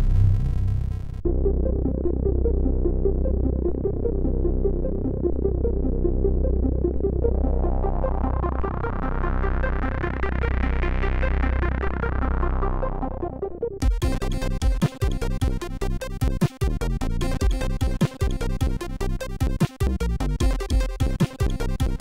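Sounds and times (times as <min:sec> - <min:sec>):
chiptune music: 0:12.6 - 0:22.0.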